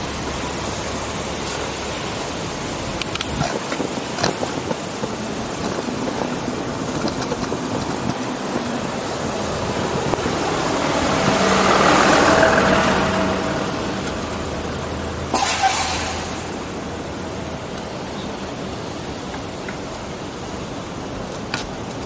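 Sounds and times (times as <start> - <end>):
bus engine running: 0.0 - 22.0
street traffic noise: 0.0 - 22.0
sharp hiss: 14.8 - 17.0.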